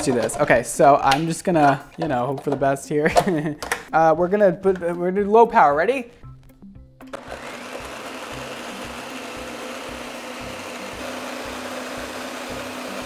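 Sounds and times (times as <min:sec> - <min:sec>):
blender whirring: 0:07.1 - 0:13.0.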